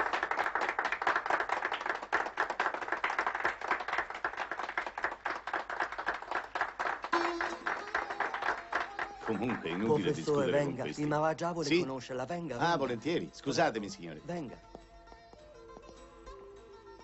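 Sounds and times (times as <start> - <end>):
people clapping: 0.0 - 11.2.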